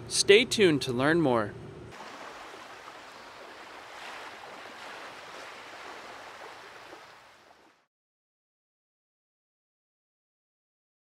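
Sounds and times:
ocean waves washing: 1.9 - 7.9.

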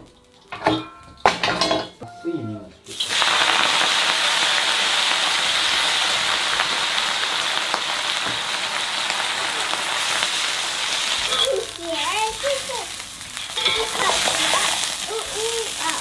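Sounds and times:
greens sizzling in hot oil: 2.8 - 16.0.

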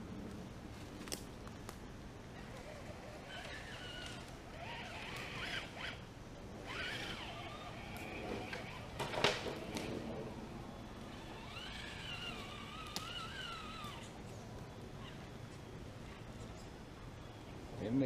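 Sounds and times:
electric motor and gears whining: 2.3 - 16.6.

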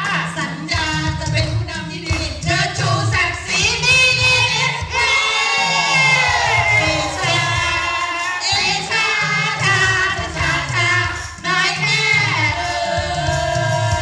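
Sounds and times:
people singing through pa: 0.0 - 14.0
group singing along: 4.3 - 14.0.

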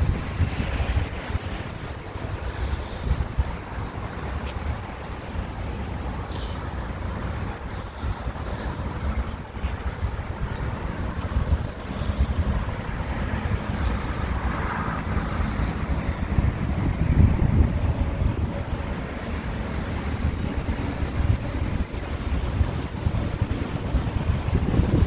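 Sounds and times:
distant road traffic: 0.0 - 25.0
wind buffeting microphone: 0.0 - 25.0.

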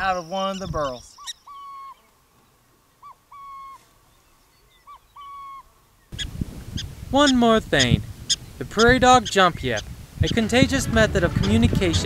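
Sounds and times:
owl hooting: 0.0 - 2.1, 3.0 - 3.9, 4.8 - 7.4
rushing outdoor background: 6.1 - 12.0.

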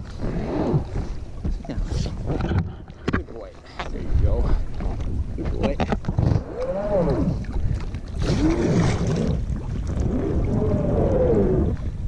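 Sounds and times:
paddle splashing: 0.0 - 12.0
raft hull groaning over rock: 4.0 - 12.0.

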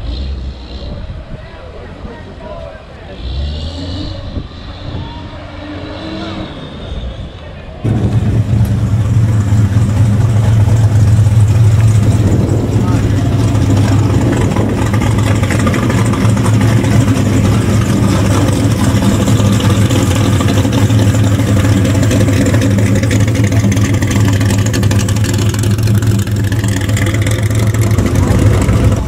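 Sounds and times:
car engine running at low revs: 7.8 - 29.0.

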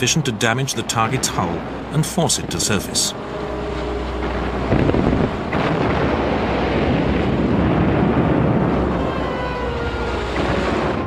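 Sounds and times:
rough sea: 0.0 - 11.0
wind rushing: 3.2 - 9.0.

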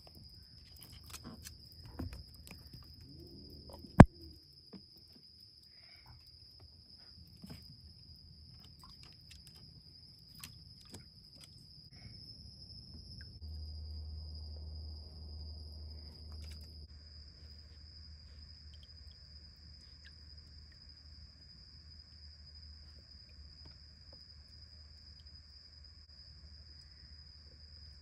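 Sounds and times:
night insects trilling: 0.0 - 28.0
clicks and splashes in plastic pool: 8.5 - 11.7, 16.3 - 16.7.

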